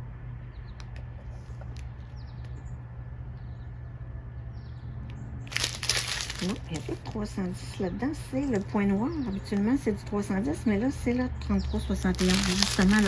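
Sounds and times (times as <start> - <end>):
steady low hum: 0.0 - 13.0
loud plastic crinkle: 5.5 - 7.2, 11.8 - 13.0
plastic bags clicking and rustling: 5.5 - 7.2, 11.8 - 13.0.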